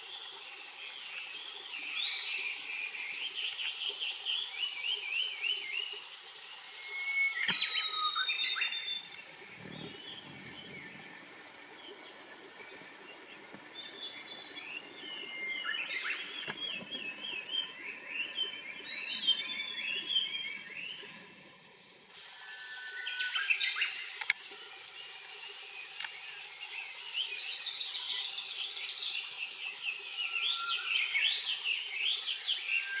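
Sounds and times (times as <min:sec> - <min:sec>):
flycatcher singing: 0:06.9 - 0:11.1.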